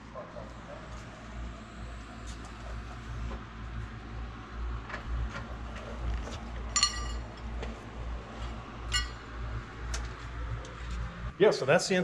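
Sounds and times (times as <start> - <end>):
low steady hum: 0.0 - 12.0
ringing metallic clink: 6.8 - 7.2, 8.9 - 9.2.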